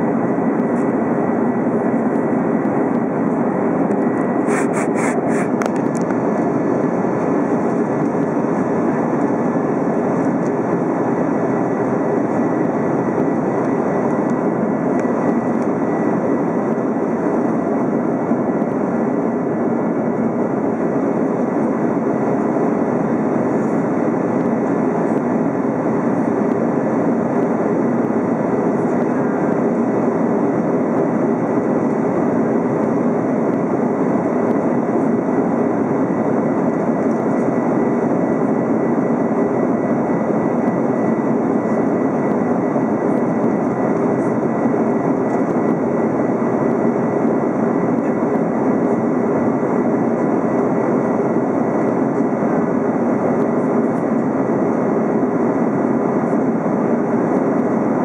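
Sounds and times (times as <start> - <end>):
airplane cabin engine hiss: 0.0 - 58.0
faint high steady whine: 0.0 - 58.0.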